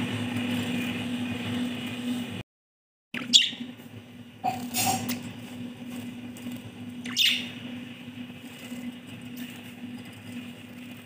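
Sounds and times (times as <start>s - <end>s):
budgerigars chirping: 3.2s - 3.6s, 7.1s - 7.6s
steady low hum: 3.2s - 11.0s.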